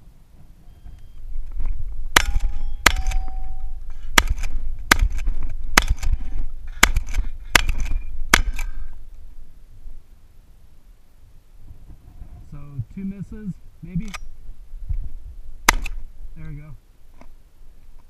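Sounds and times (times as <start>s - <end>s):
shotgun shots: 2.1s - 3.3s, 4.2s - 8.8s, 15.6s - 16.0s
metallic ring of steel targets: 2.2s - 3.8s.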